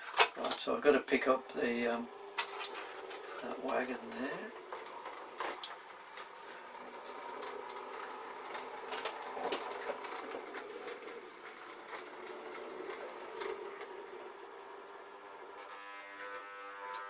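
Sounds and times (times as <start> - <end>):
wheels clicking over track: 0.0 - 15.5
model train motor whirring: 1.6 - 17.0.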